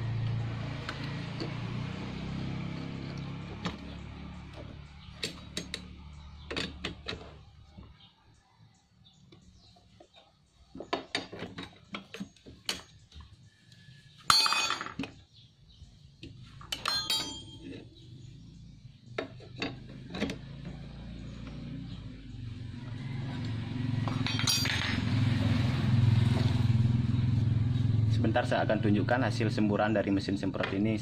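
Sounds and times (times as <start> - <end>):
ringing metallic clatter: 14.3 - 15.0, 16.7 - 17.8, 24.0 - 25.1.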